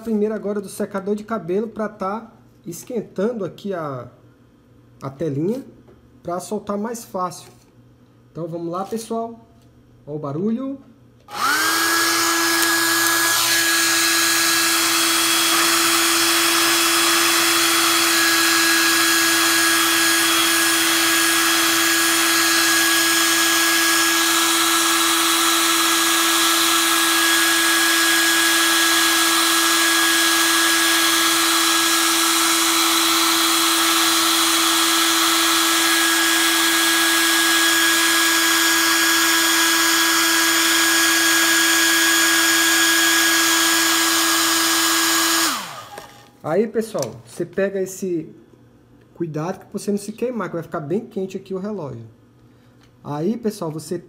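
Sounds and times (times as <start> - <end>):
hair dryer motor whine: 11.3 - 46.3.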